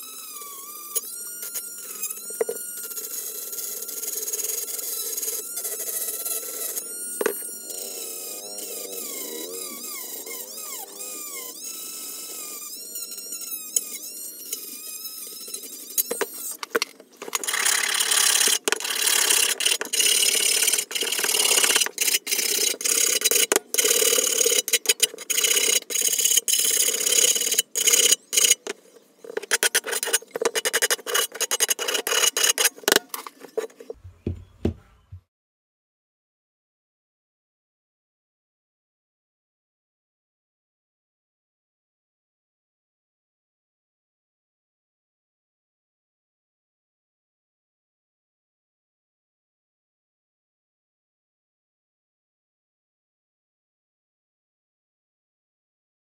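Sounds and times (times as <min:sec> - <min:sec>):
rotary tool grinding steel: 0:00.0 - 0:34.0.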